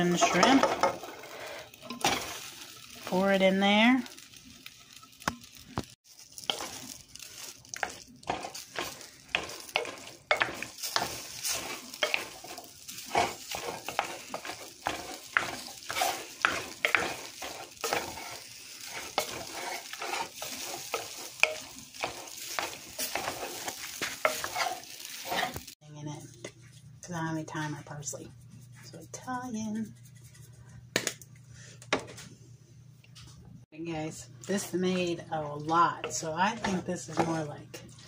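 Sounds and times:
wooden spoon scraping dish: 6.4 - 6.9, 7.8 - 25.8.

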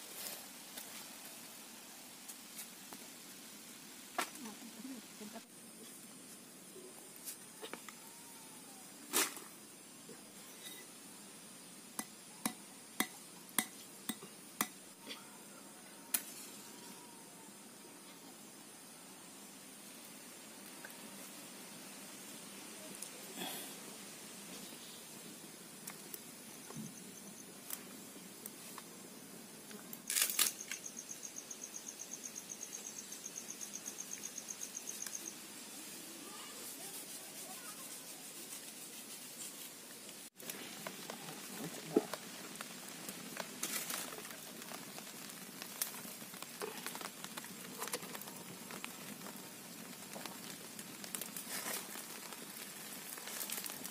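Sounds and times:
insect chirping: 3.3 - 53.9
match striking: 50.2 - 53.9.

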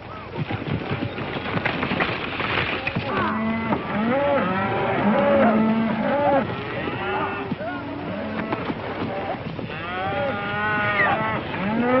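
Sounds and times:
hooves clattering: 0.0 - 12.0
cattle mooing: 3.1 - 12.0.

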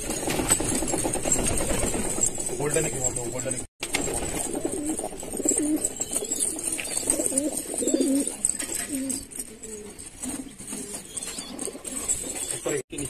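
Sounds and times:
pigeons cooing: 4.4 - 12.8.

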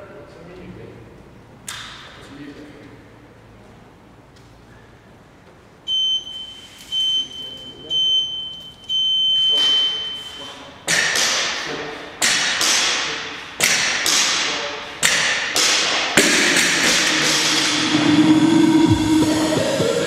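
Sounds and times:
long timer beep: 5.9 - 10.6.

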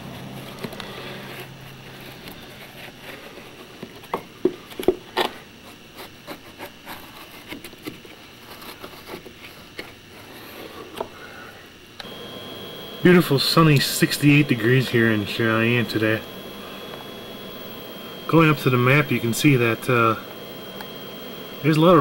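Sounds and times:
small clicks: 15.8 - 21.8.

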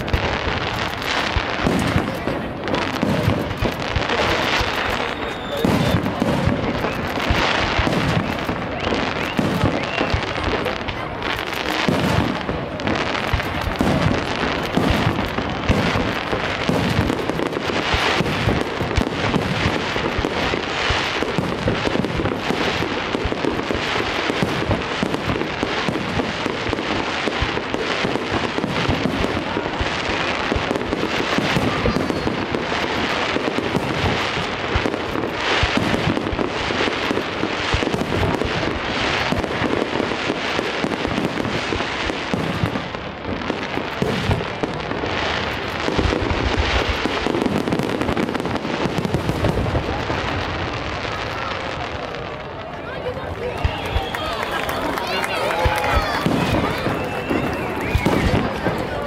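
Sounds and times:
fireworks bangs and pops: 0.0 - 59.0.

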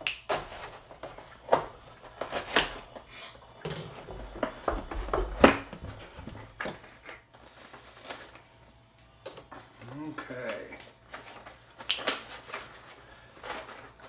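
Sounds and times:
knife slitting packing tape: 2.1 - 2.8
cardboard flaps scraping and knocking: 3.9 - 7.0.

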